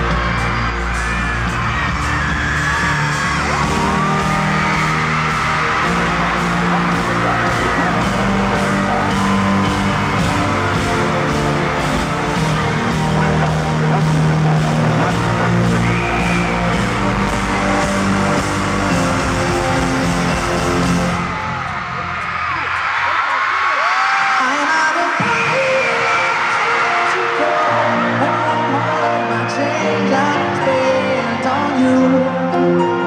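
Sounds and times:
live rock band playing: 0.0s - 21.4s
crowd yelling and whooping: 0.0s - 33.0s.

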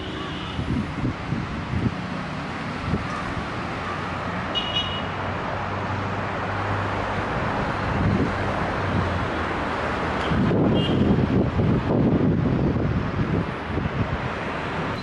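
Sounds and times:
wind on microphone: 0.0s - 3.7s, 7.4s - 15.0s
distant road traffic: 0.0s - 15.0s.

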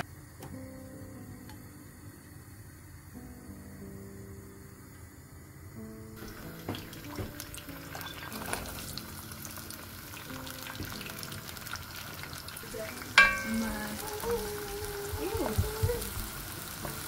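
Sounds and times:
background music: 3.2s - 17.0s
onions sizzling in hot oil: 6.1s - 17.0s
small knocks: 6.2s - 7.5s
wooden spoon striking pan: 13.2s - 14.1s.

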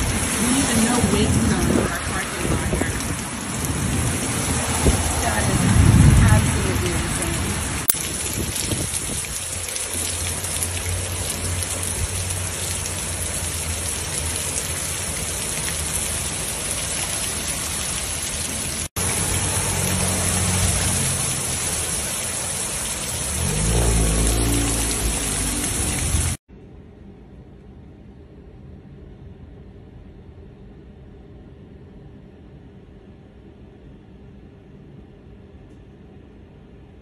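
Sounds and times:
heavy rain on standing water: 0.0s - 26.4s
low rumble: 1.0s - 9.2s.

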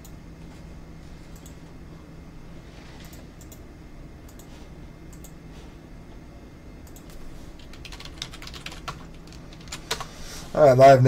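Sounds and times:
steady low hum: 0.0s - 11.0s
computer keyboard keystrokes: 6.9s - 10.1s.

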